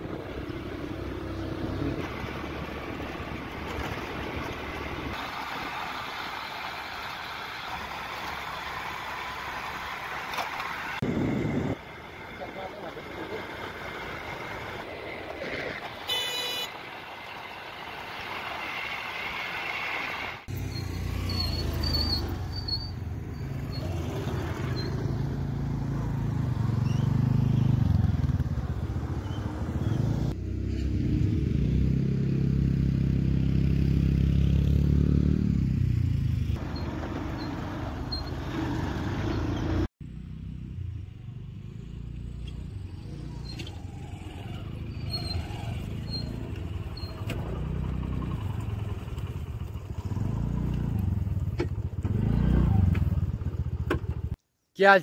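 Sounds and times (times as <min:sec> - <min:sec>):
scooters and motorcycles passing: 0:00.0 - 0:54.4
short high horn beep: 0:16.1 - 0:16.7.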